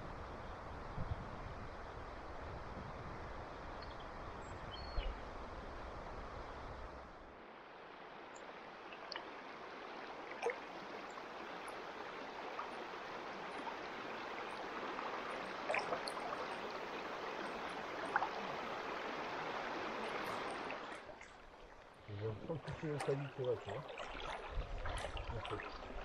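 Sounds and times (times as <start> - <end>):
river rushing past rocks: 6.8 - 23.0
small water splashes: 7.8 - 26.0.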